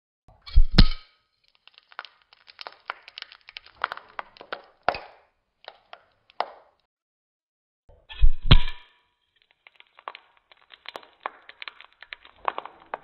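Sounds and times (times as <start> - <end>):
hot bulb crackling and ticking: 1.4 - 6.6, 9.4 - 13.0.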